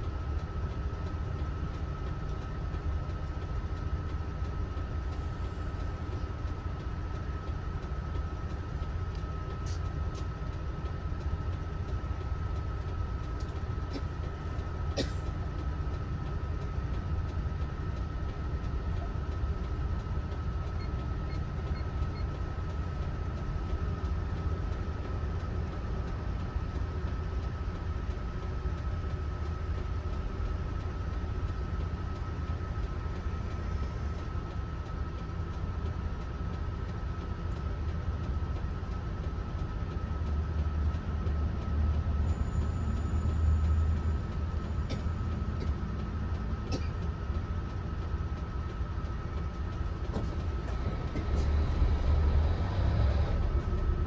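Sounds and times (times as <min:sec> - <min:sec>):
bus engine and road noise: 0:00.0 - 0:54.0.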